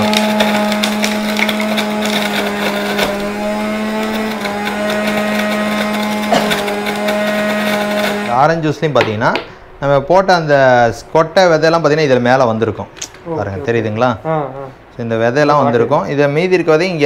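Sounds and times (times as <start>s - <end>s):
electric juicer motor humming: 0.0s - 8.4s
fruit being ground: 0.0s - 8.6s.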